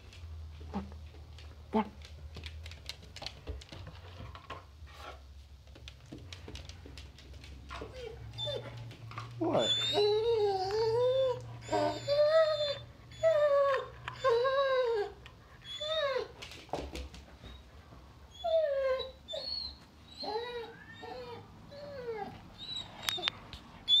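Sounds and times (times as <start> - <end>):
puppy whining: 7.7 - 16.5, 17.4 - 24.0.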